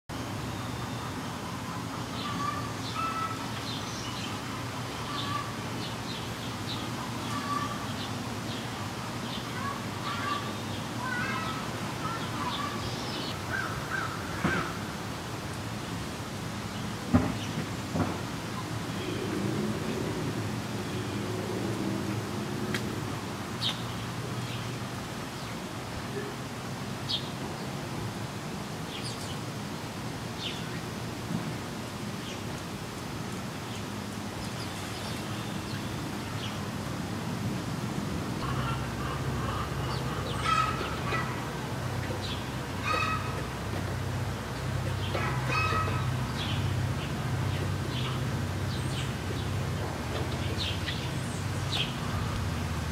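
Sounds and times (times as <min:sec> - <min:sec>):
birds calling: 0:00.2 - 0:16.1, 0:38.4 - 0:52.9.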